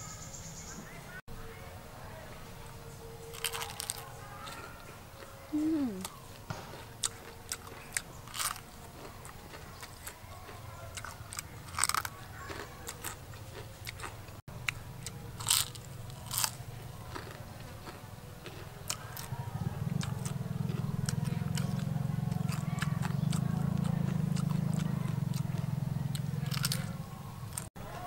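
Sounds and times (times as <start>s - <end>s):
crunching bites and chewing: 3.3s - 4.7s, 6.0s - 26.9s.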